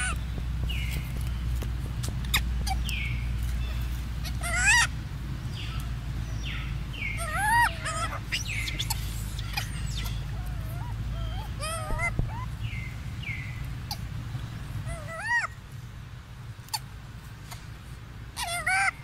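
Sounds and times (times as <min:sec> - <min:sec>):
baby monkey squealing: 0:00.0 - 0:01.2, 0:02.0 - 0:05.8, 0:07.0 - 0:12.8, 0:13.4 - 0:14.1, 0:14.8 - 0:15.6, 0:18.4 - 0:19.0
steady low hum: 0:00.0 - 0:19.0.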